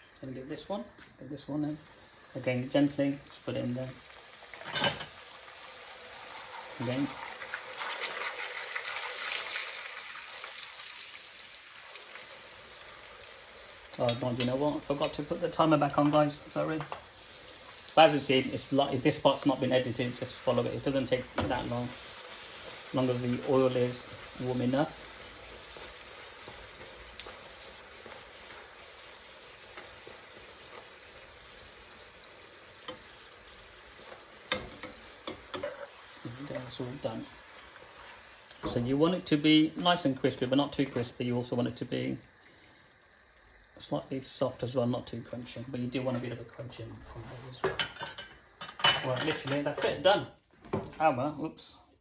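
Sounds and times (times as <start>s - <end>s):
oil sizzling in frying pan: 0.0s - 51.2s.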